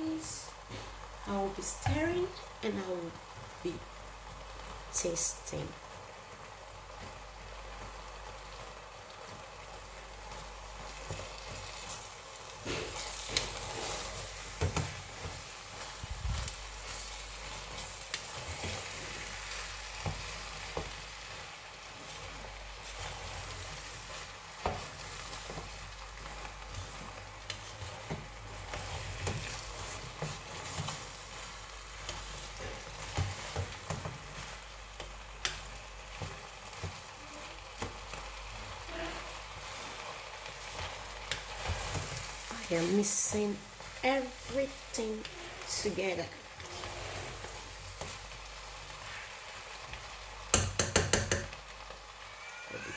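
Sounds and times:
rice sizzling in a pot: 0.0 - 52.9
wooden spoon scraping a pot: 10.2 - 50.0.

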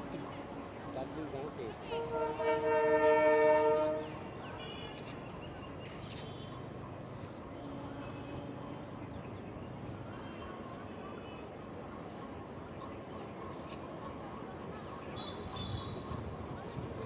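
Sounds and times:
train horn blast: 1.8 - 5.1.

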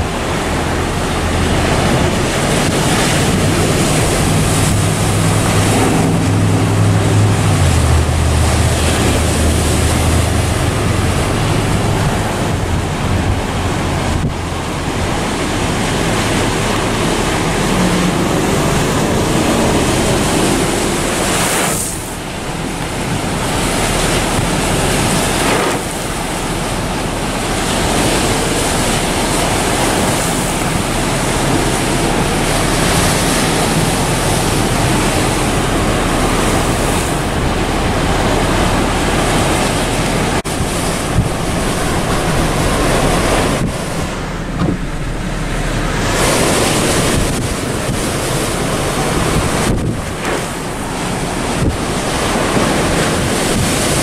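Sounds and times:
low hum: 0.0 - 23.6, 28.6 - 48.6
gusty wind on microphone: 0.0 - 54.0
waves breaking on rocky shore: 0.0 - 54.0.

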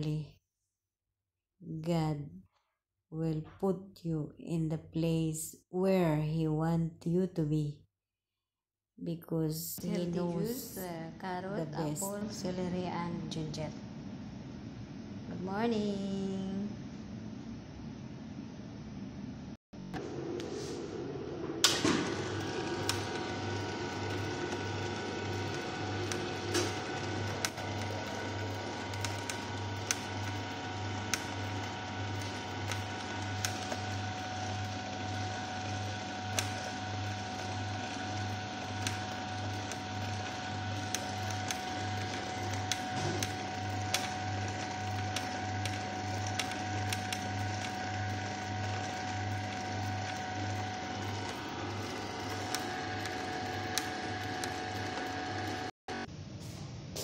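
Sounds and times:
juicer motor humming: 19.8 - 56.1.

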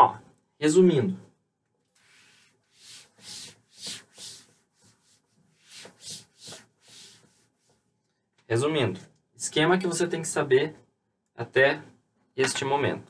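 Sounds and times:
eraser rubbing on chalkboard: 2.0 - 7.8.

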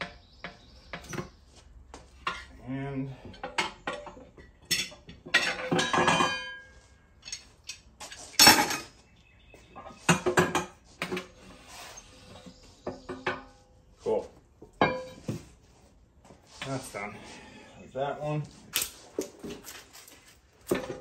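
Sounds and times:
tire irons clanking on metal: 2.2 - 9.0, 14.6 - 15.5, 20.6 - 21.0.

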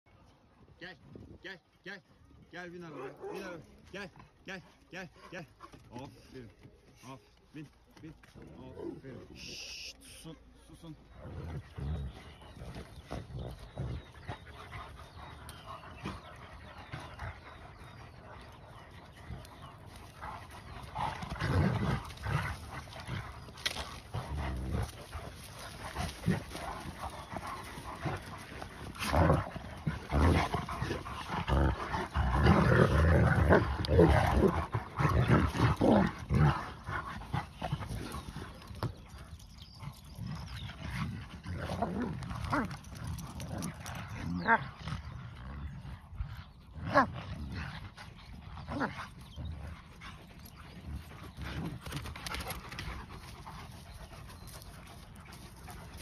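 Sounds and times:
dogs barking: 2.9 - 3.6
dogs growling: 10.9 - 56.0.

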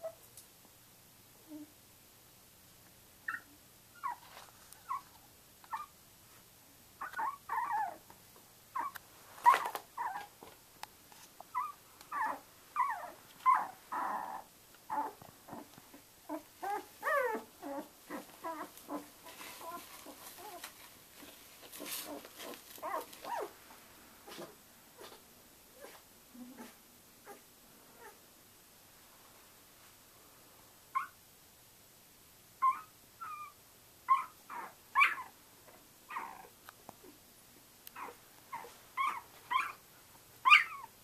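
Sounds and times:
puppies squeaking and whimpering: 7.0 - 8.0, 16.3 - 20.7, 21.9 - 23.5, 38.0 - 39.8, 40.5 - 40.9.

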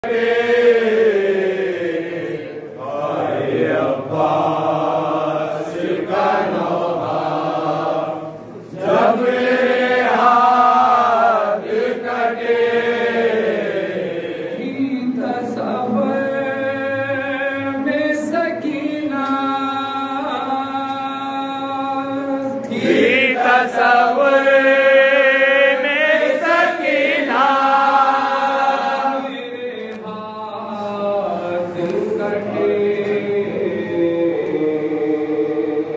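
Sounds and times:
men chanting into microphone: 0.0 - 35.9.

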